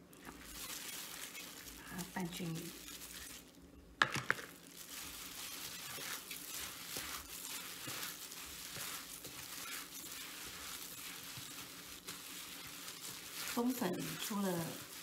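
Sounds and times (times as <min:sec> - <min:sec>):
hand squelching moist filling: 0:00.1 - 0:03.5, 0:04.6 - 0:15.0.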